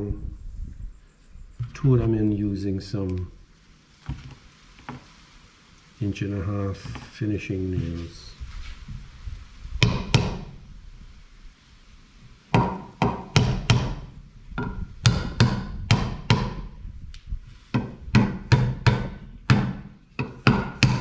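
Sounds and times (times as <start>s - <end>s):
hammer striking nails into wood: 9.8s - 10.5s, 12.6s - 14.0s, 14.6s - 16.7s, 17.7s - 21.0s.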